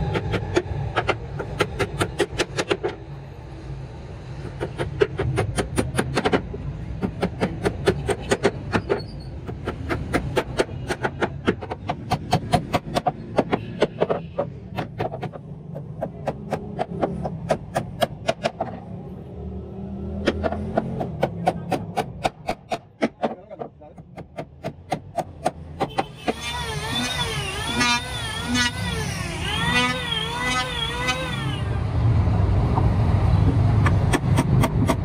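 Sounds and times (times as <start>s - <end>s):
hammer striking chisel into wood: 7.0s - 18.7s.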